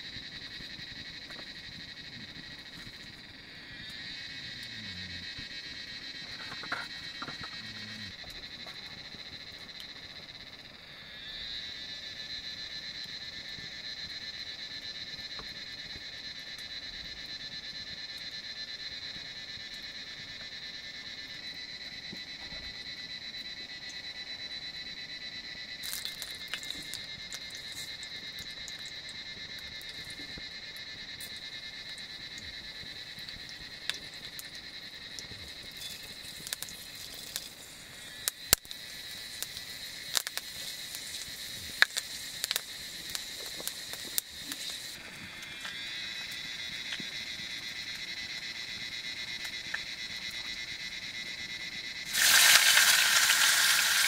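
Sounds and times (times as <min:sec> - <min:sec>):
frogs and insects trilling: 0:00.0 - 0:54.0
sharp crackles: 0:25.8 - 0:27.0, 0:35.8 - 0:45.0, 0:52.1 - 0:54.0.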